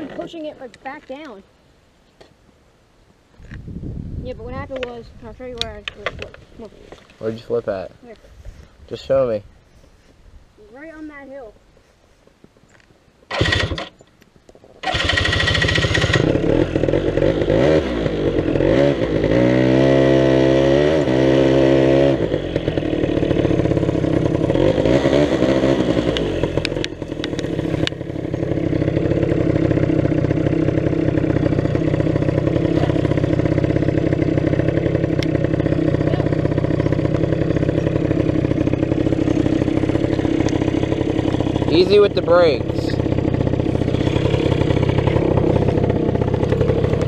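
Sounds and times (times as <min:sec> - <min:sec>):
quad bike engine revving: 0:13.3 - 0:13.9, 0:14.8 - 0:47.0.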